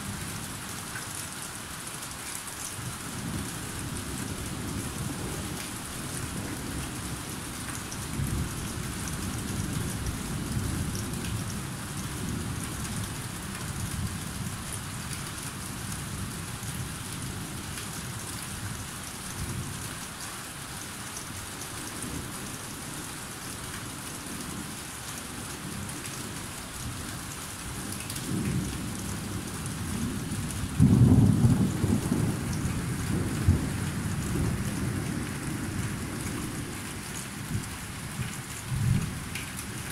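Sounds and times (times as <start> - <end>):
rain falling: 0.0 - 39.9
loud thunderclap: 30.8 - 35.1.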